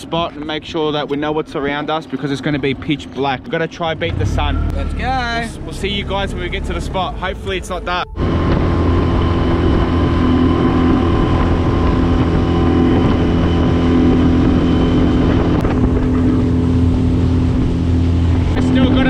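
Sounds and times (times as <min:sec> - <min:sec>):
water rushing past hull: 0:05.2 - 0:19.0
outboard motor running: 0:08.1 - 0:19.0.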